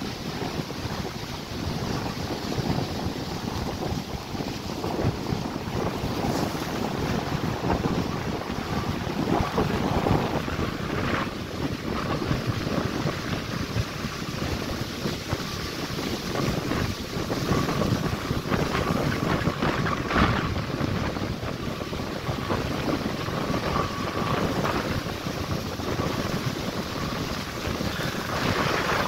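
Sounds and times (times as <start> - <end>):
ocean surf breaking: 0.0 - 29.0
wind on microphone: 0.0 - 29.0.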